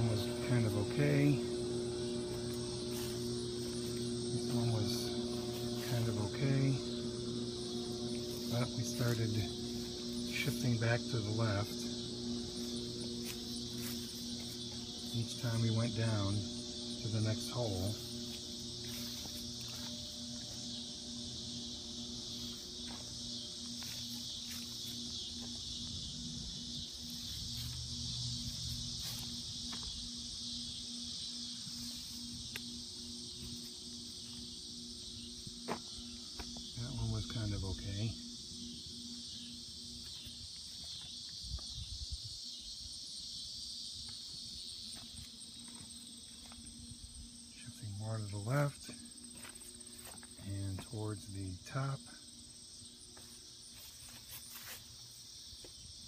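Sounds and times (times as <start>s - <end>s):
low pulsing tone: 0.0s - 42.3s
insects chirring: 0.0s - 56.0s.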